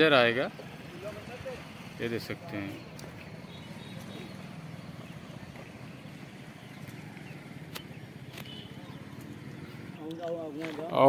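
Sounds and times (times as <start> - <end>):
sharp clicks: 7.6 - 8.6
footsteps crunching on stones: 10.1 - 11.0.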